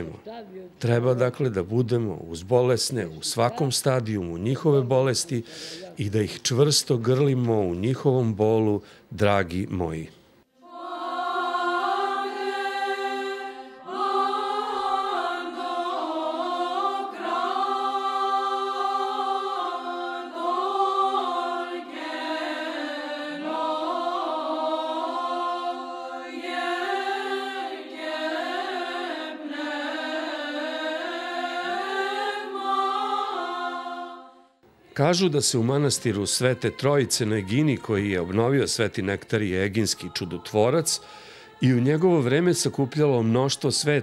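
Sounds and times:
steady held vocal drone: 10.6s - 44.0s
voices chanting a melody: 10.6s - 44.0s.

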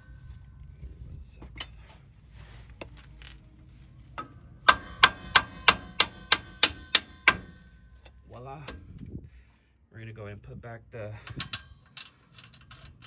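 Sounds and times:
mallet striking metal: 4.7s - 7.7s.

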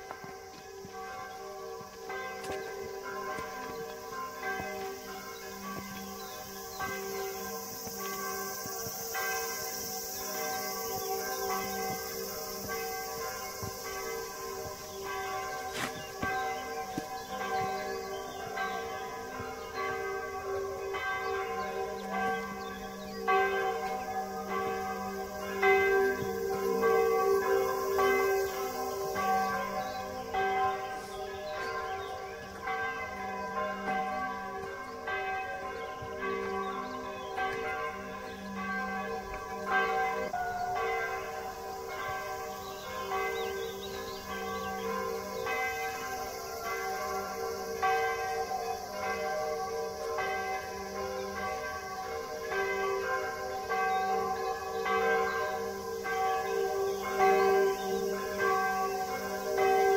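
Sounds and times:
bells ringing: 0.0s - 59.9s.

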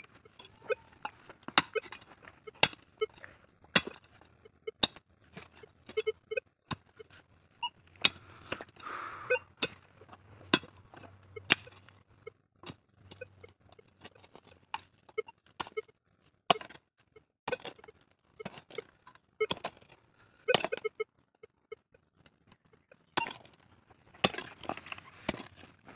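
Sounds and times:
pickaxe striking stony soil: 1.5s - 2.9s, 3.7s - 4.1s, 9.6s - 9.8s, 24.1s - 25.7s.

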